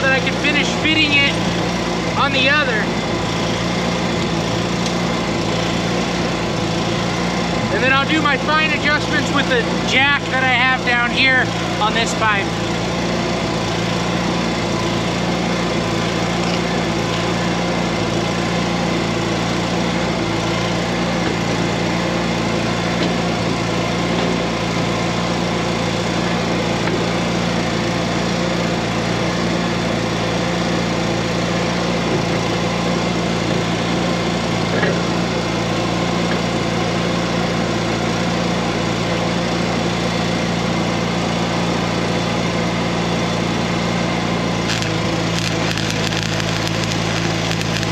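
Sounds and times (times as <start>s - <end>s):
engine running steadily: 0.0s - 47.9s.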